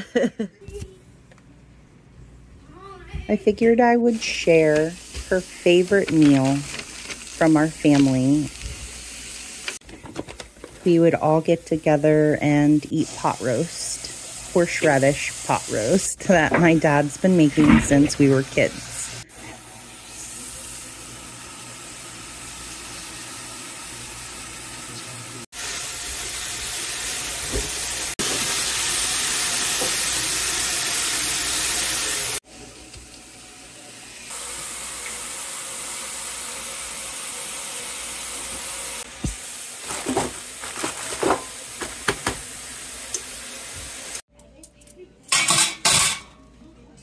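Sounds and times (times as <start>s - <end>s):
tap water running into pan: 4.2s - 10.9s, 11.8s - 19.2s, 20.9s - 44.2s.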